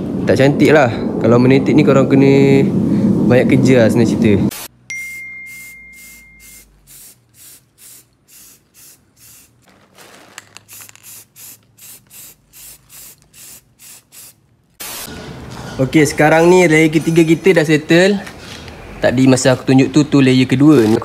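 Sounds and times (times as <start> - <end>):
faint high steady tone: 4.9 - 6.7
spray-paint can hissing squirts: 5.6 - 9.6, 10.7 - 15.1.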